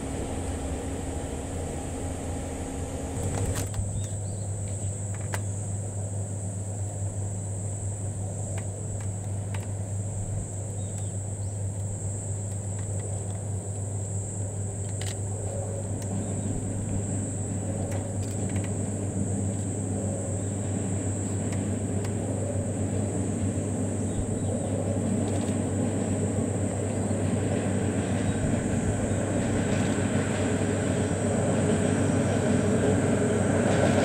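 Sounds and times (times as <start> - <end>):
low hum: 0.0 - 5.0, 7.6 - 34.0
car cabin road noise: 0.0 - 5.4
cicadas shrilling: 0.0 - 34.0.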